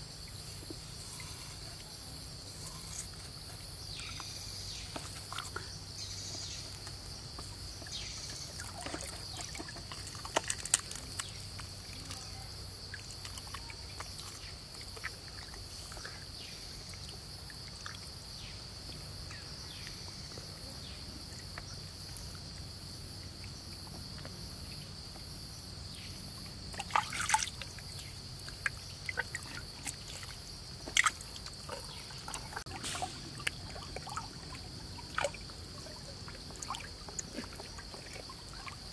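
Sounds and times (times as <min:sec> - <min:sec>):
insects droning: 0:00.0 - 0:38.9
water sloshing and squelching: 0:00.3 - 0:18.4, 0:26.7 - 0:38.9.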